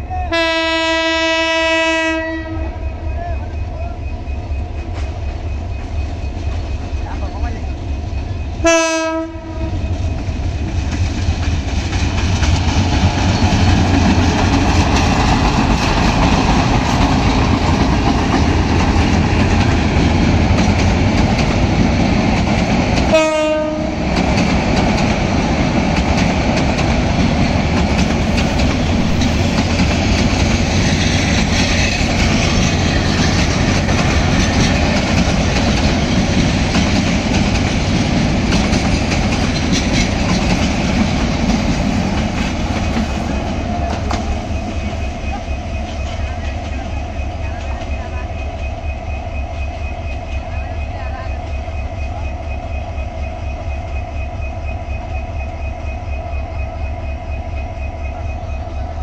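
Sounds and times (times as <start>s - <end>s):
train horn blast: 0.3s - 2.9s, 8.6s - 9.9s, 23.1s - 24.1s
train wheels clattering on rails: 2.9s - 50.8s.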